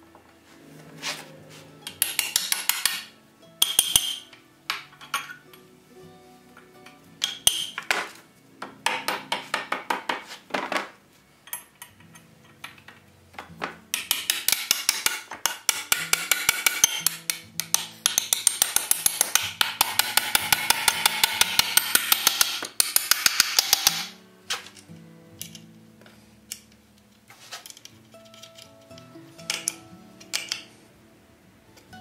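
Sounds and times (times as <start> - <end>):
hammer striking iron rivets: 1.8 - 5.4, 7.2 - 10.8, 11.5 - 24.8, 29.5 - 30.7.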